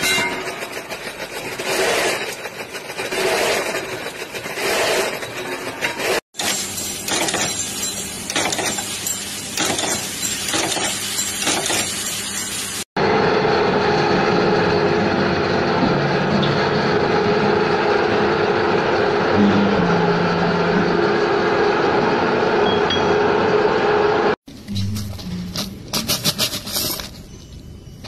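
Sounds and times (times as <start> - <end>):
lower tone: 19.2 - 23.2.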